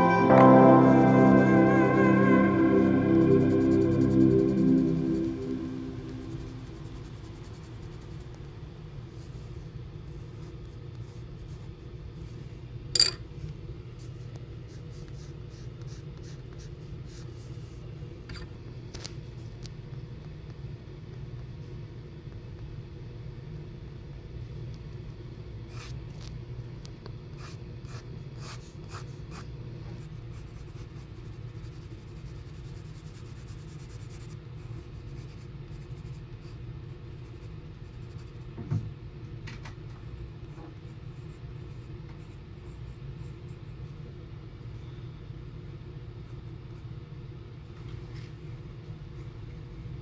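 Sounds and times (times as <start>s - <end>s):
steady low hum: 0.0s - 50.0s
pencil scratching on paper: 30.3s - 36.6s.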